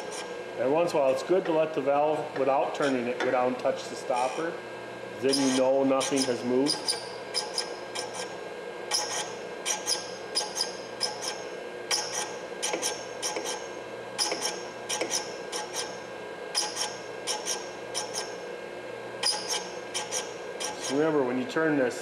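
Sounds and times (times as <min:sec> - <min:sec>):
grinder humming: 0:00.0 - 0:22.0
metal grinding scrapes: 0:05.2 - 0:08.3, 0:19.2 - 0:21.1.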